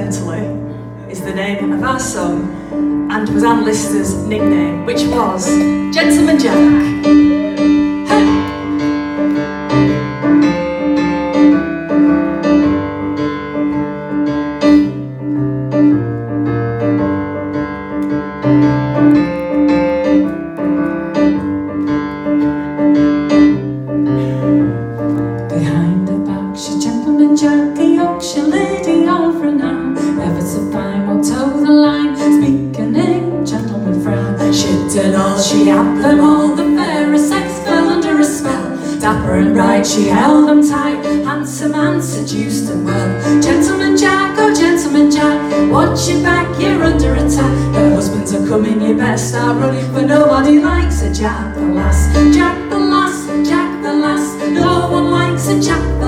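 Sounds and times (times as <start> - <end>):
woman singing: 0.0 - 10.0, 25.5 - 56.0
electric piano chords: 0.0 - 56.0.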